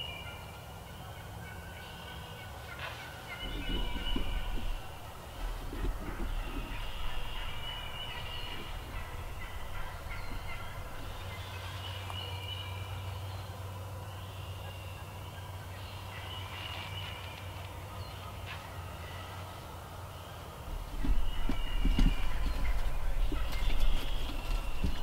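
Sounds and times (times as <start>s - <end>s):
turkey gobbling: 1.4s - 12.1s, 20.7s - 25.0s.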